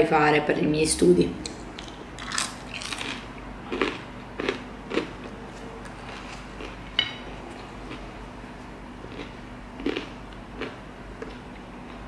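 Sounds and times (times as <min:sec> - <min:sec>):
chewing and biting food: 0:01.8 - 0:07.0, 0:09.0 - 0:12.0.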